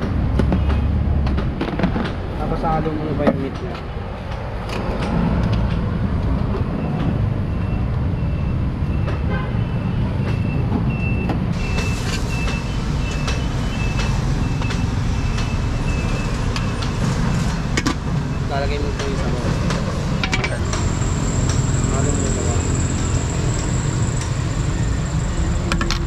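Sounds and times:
reversing alarm beeping: 0:06.8 - 0:17.0
large vehicle engine running: 0:10.8 - 0:26.0.

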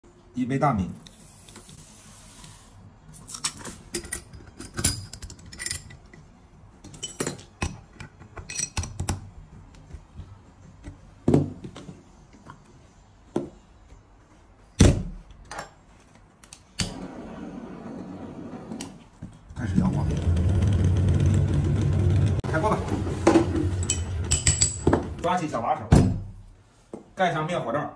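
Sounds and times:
metallic clinks and clanks: 0:23.8 - 0:24.9.

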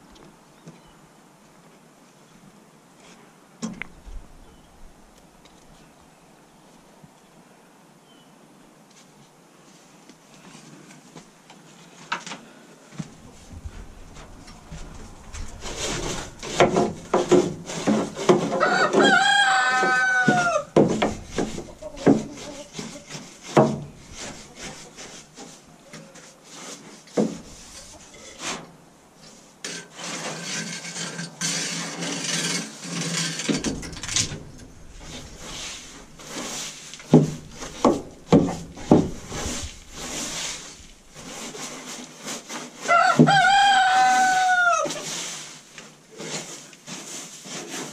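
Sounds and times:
broom scraping wooden boards: 0:09.0 - 0:47.9
rooster crowing: 0:18.5 - 0:20.8, 0:42.8 - 0:45.0.

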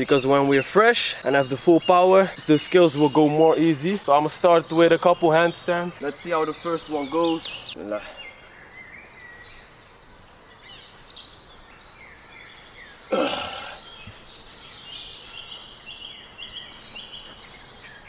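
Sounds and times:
songbirds chirping and singing: 0:00.0 - 0:18.0
man grunting with effort: 0:13.1 - 0:13.8.

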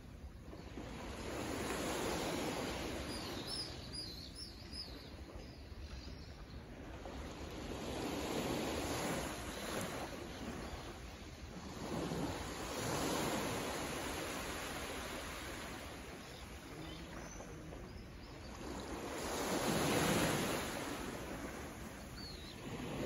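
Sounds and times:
bird chirping: 0:03.1 - 0:06.6, 0:22.0 - 0:22.7.

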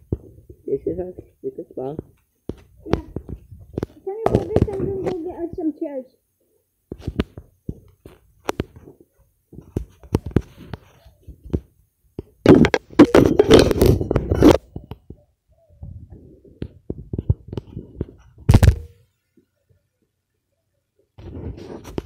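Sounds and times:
rubbing over microphone: 0:00.0 - 0:05.4, 0:06.9 - 0:11.7, 0:12.4 - 0:18.8, 0:21.2 - 0:22.0.

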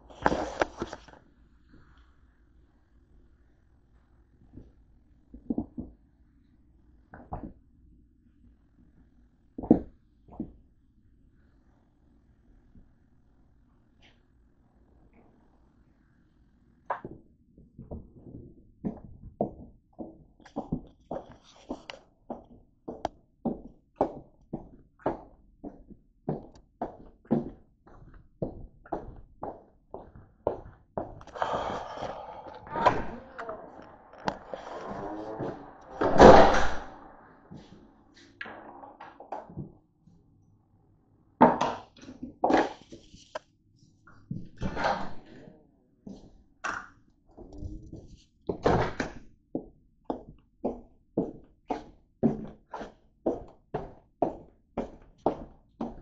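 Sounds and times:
footsteps on a hard floor: 0:18.9 - 0:36.8.

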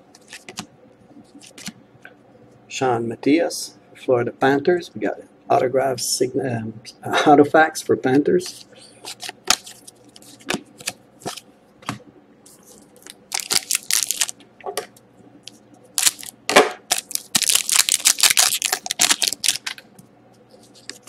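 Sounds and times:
wrapper crinkling and tearing: 0:13.0 - 0:14.4, 0:16.0 - 0:19.8.

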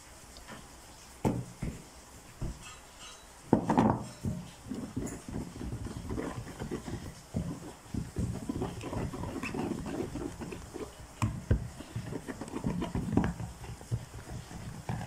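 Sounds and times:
whisk beating batter: 0:03.5 - 0:15.0.

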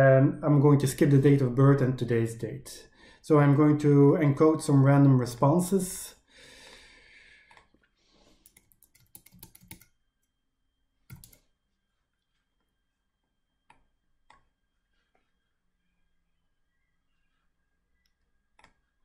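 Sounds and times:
mouse and keyboard clicks: 0:08.4 - 0:09.9, 0:11.1 - 0:11.4.

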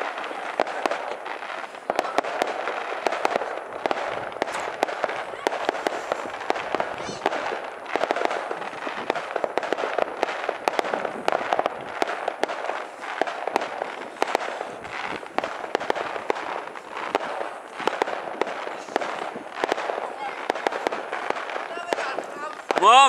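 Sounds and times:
firecrackers popping and banging: 0:00.0 - 0:23.0
steady crackling hiss: 0:00.0 - 0:23.0.

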